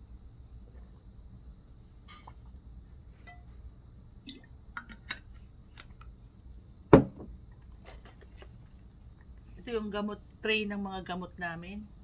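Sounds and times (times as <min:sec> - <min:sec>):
object knocking on table: 0:06.9 - 0:07.3.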